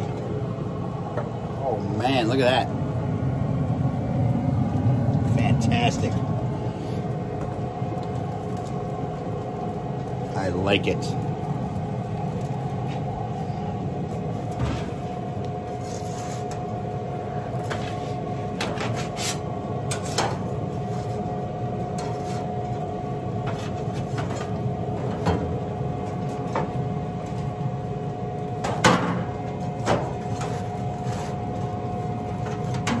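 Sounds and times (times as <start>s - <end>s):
grill fan humming: 0.0s - 33.0s.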